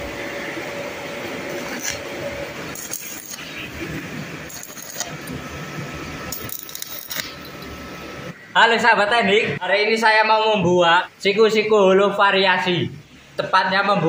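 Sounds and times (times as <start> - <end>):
welding arc crackling and sputtering: 1.3 - 8.4.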